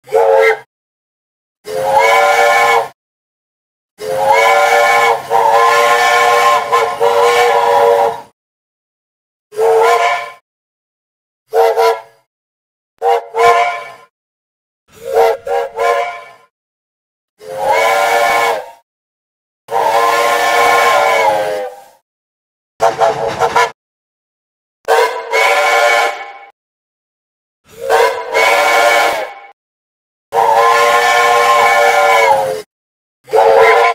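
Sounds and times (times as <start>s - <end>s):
steam locomotive whistle: 0.0s - 0.7s, 1.6s - 3.0s, 4.0s - 8.3s, 9.5s - 10.4s, 11.5s - 12.3s, 13.0s - 14.1s, 14.9s - 16.5s, 17.4s - 18.8s, 19.7s - 22.0s, 22.8s - 23.8s, 24.9s - 26.6s, 27.7s - 29.6s, 30.3s - 32.7s, 33.3s - 33.9s
steam whistle chord: 15.0s - 16.5s.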